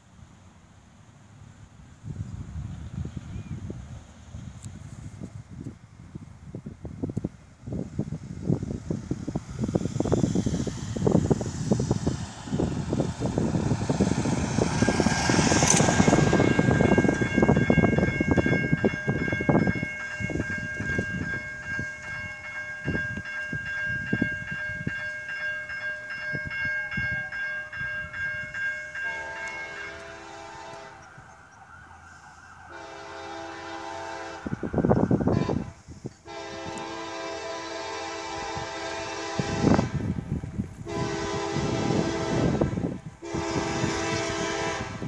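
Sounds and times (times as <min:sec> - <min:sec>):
locomotive air horn blasts: 0:29.0 - 0:31.2, 0:32.7 - 0:40.2, 0:40.8 - 0:45.0.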